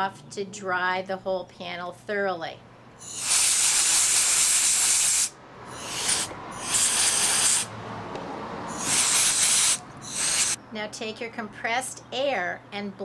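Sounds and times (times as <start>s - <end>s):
compressed air hissing: 3.0s - 7.7s, 8.7s - 10.6s.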